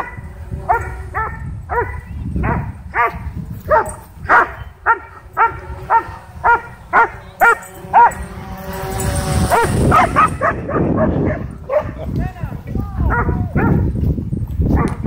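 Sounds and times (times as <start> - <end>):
dog barking excitedly: 0.0 - 8.3, 9.5 - 12.0, 13.1 - 13.9.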